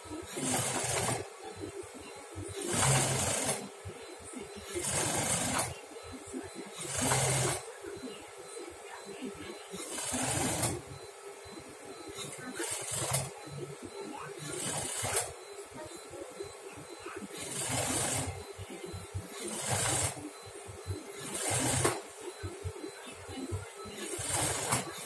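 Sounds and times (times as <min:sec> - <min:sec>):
sewing machine stitching: 0:00.3 - 0:01.3, 0:02.6 - 0:03.7, 0:04.8 - 0:05.7, 0:06.8 - 0:07.6, 0:09.8 - 0:10.8, 0:12.6 - 0:13.3, 0:14.6 - 0:15.3, 0:17.4 - 0:18.3, 0:19.5 - 0:20.2, 0:21.2 - 0:22.0, 0:24.1 - 0:25.0.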